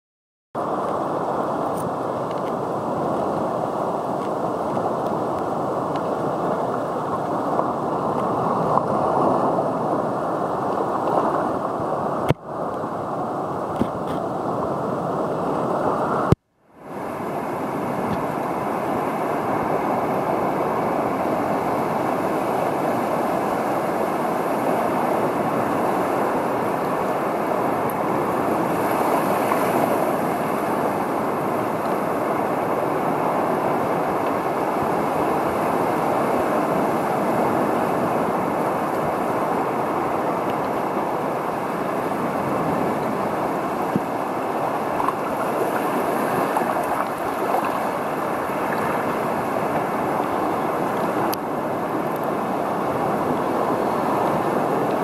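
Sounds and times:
muffled rush of water underwater: 25.0 - 55.0.

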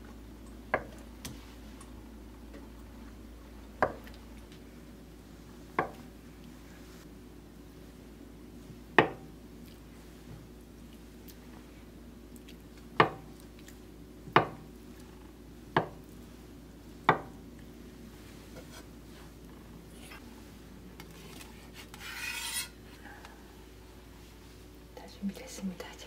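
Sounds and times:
knife scraping board: 21.3 - 22.8.

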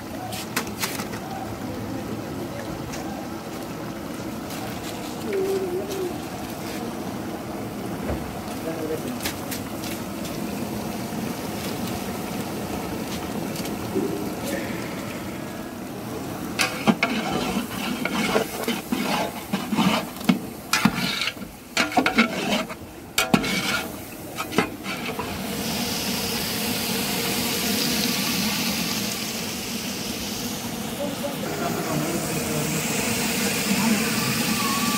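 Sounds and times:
food cooking hiss: 0.0 - 34.9
ladle scraping and knocking pot: 16.6 - 25.3.

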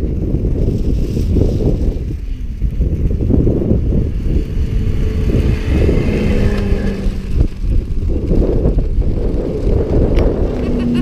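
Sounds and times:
off-road vehicle engine running: 0.0 - 11.0
wind buffeting microphone: 0.0 - 11.0.

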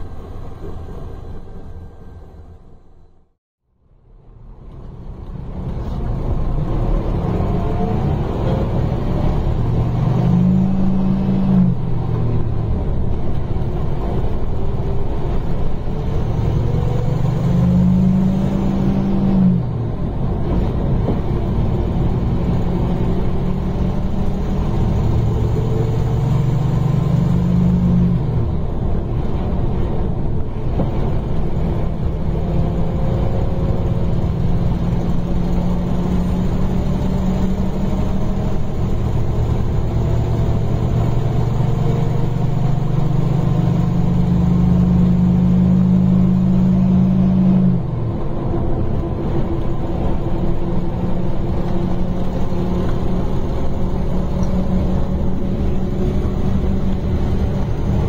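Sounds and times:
bus engine accelerating: 0.0 - 58.0.

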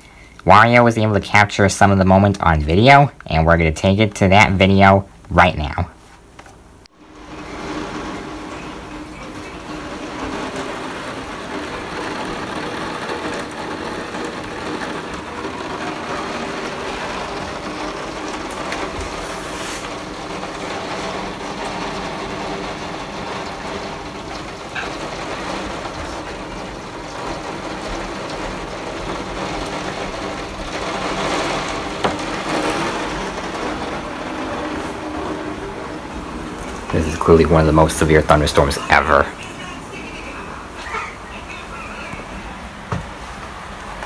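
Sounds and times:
low hum: 6.8 - 38.4
thunderstorm rushing noise: 6.9 - 39.3.

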